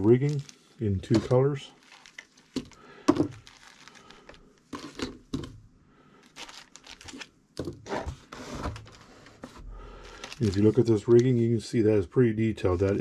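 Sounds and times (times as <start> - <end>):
plastic bags crinkling: 0.0 - 5.5, 6.2 - 7.3, 9.9 - 11.4.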